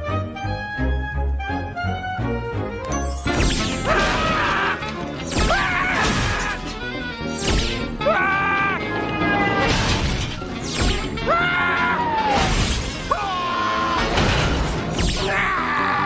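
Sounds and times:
music: 0.0s - 16.0s
cartoon smashing crash: 3.1s - 4.6s.

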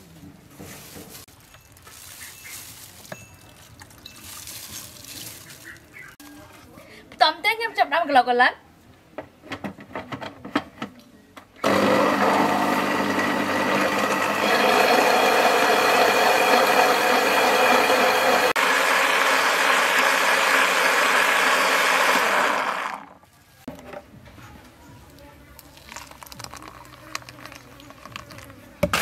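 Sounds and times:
electric blender running: 11.6s - 23.2s.

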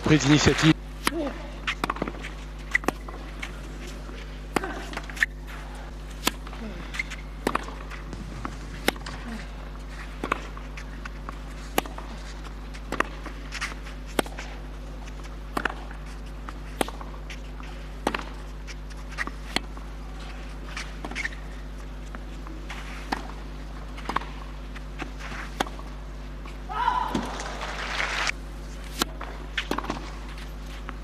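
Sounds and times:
steady low hum: 0.0s - 31.0s
racket hitting tennis ball: 1.0s - 21.4s, 22.6s - 26.0s, 28.8s - 30.4s.

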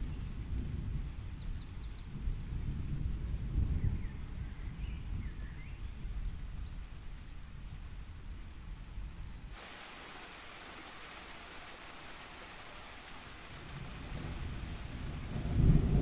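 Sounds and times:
rain hissing: 9.5s - 16.0s
thunder rumbling: 13.5s - 16.0s.

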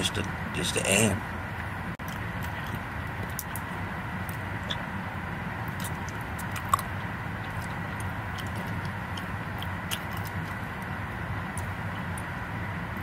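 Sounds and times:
person chewing: 2.0s - 4.9s, 5.6s - 10.9s.

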